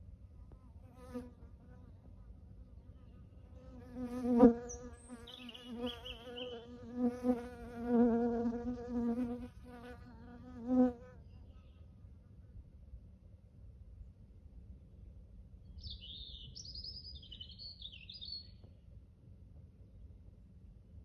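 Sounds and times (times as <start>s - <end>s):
flying insect buzzing: 3.6s - 11.1s.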